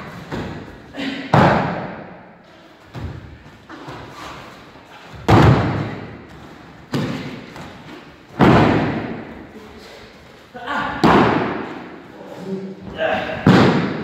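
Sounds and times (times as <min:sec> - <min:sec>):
body thudding on foam mats: 0:05.1 - 0:09.2.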